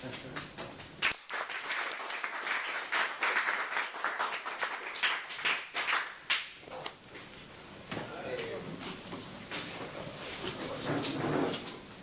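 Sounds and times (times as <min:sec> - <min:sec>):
audience applauding: 0:01.0 - 0:06.6.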